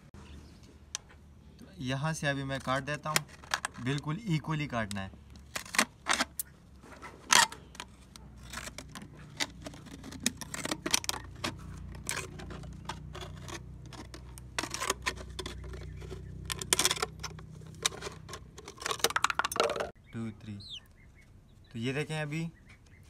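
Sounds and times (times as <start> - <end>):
plastic crackling: 7.3 - 20.0.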